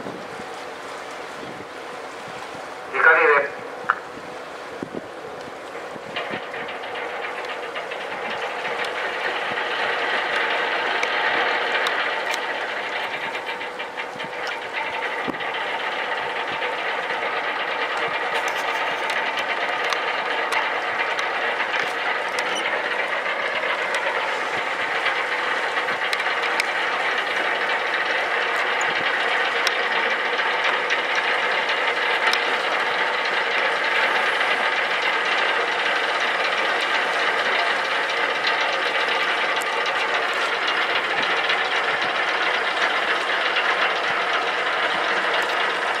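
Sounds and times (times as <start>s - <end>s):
boat engine and waterjet drone: 0.0s - 46.0s
water rushing: 0.0s - 46.0s.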